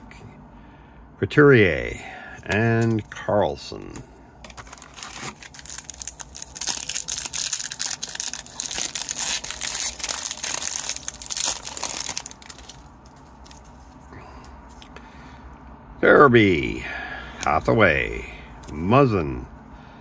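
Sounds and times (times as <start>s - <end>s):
foil wrapper crinkling: 4.5s - 14.0s.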